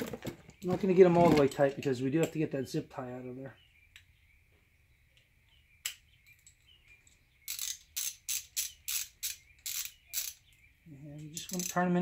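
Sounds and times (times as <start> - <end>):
ratchet clicking: 7.5 - 10.4, 11.4 - 11.9.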